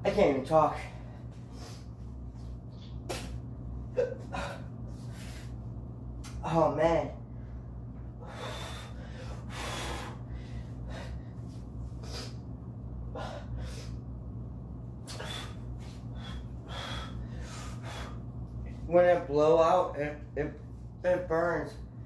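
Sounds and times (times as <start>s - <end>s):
man gasping breaths: 7.3s - 14.0s, 15.1s - 18.3s.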